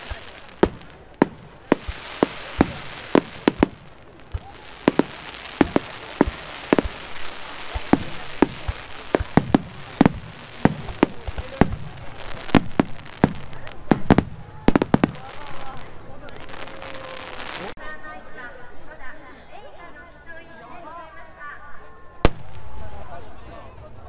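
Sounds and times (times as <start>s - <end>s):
firework shells bursting: 0.0s - 15.7s
deep firework booms: 0.0s - 17.1s.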